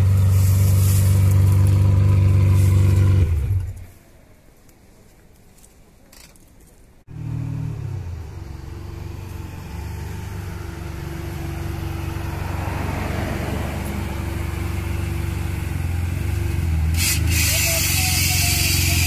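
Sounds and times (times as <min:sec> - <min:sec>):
car engine at low revs passing: 0:00.0 - 0:03.8, 0:07.1 - 0:17.4.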